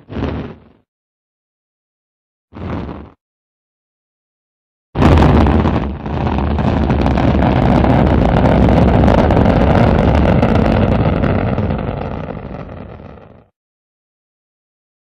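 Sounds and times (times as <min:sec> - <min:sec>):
rocket engine roar: 0:05.0 - 0:13.4.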